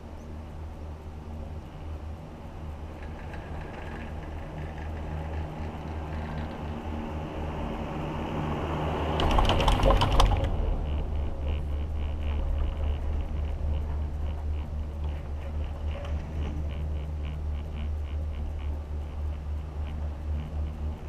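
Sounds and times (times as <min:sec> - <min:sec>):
steady low cable hum: 0:00.0 - 0:21.0
gondola grip clattering over rollers: 0:02.5 - 0:08.0, 0:09.0 - 0:16.9.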